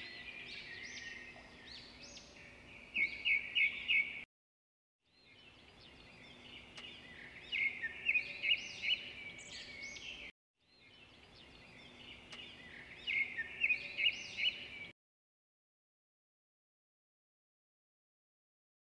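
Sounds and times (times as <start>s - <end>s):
birds chirping and twittering: 0.0s - 4.3s, 5.1s - 14.9s.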